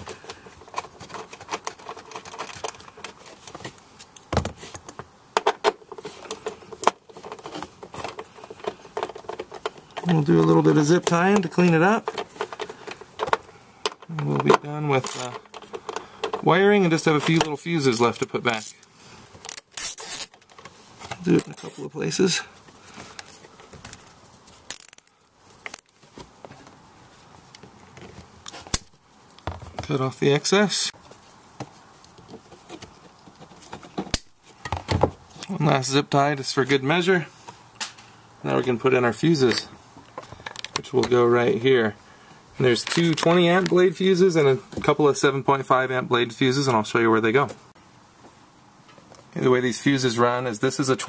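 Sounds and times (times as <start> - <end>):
plastic parts clicking and rattling: 0.0 - 16.5, 23.0 - 26.6, 39.5 - 41.2, 42.8 - 43.8
plastic and wire rustling: 0.0 - 28.8.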